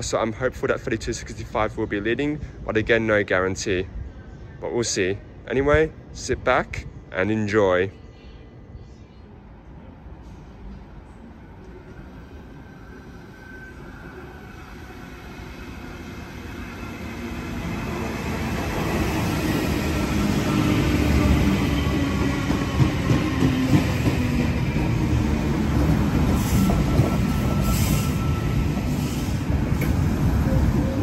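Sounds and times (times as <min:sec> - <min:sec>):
train rumbling past: 0:09.4 - 0:31.0
faint high squeal: 0:12.1 - 0:15.1, 0:26.3 - 0:29.4.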